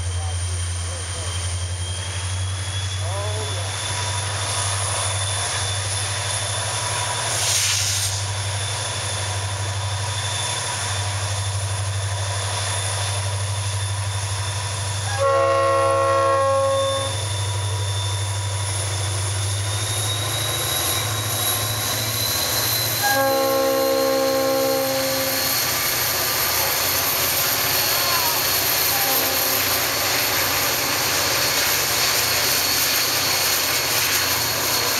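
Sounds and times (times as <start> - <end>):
diesel locomotive engine drone: 0.0 - 34.9
locomotive air horn chord: 15.1 - 17.2, 23.0 - 25.5, 28.9 - 29.8.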